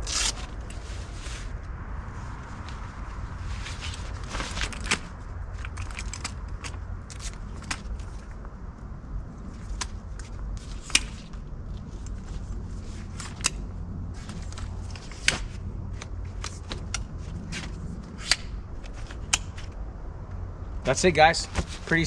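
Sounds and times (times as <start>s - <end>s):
metal poles clicking into place: 14.2s - 19.8s
fabric rustling: 21.4s - 22.0s.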